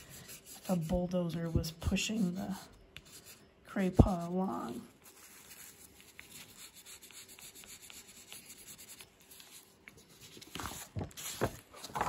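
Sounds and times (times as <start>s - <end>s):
skewer scratching on paper: 0.0s - 11.4s
paper rustling on table: 8.9s - 12.0s.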